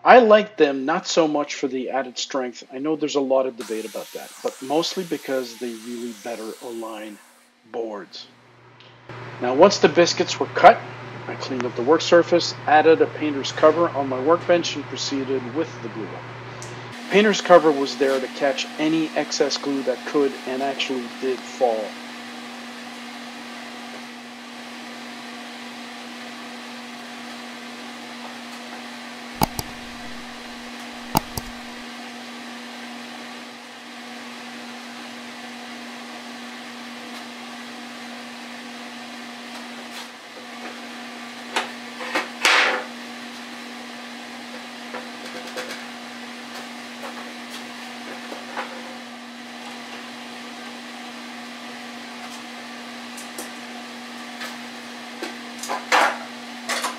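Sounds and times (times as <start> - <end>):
steady low hum: 29.4 - 31.8.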